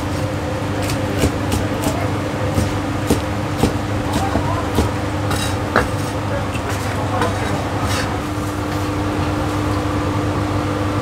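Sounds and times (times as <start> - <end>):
steady low hum: 0.0 - 11.0
cleaver chopping on wooden block: 0.8 - 6.1.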